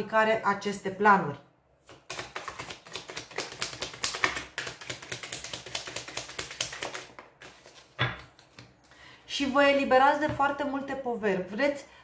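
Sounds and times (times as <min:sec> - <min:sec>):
cards being shuffled: 0:01.8 - 0:08.9.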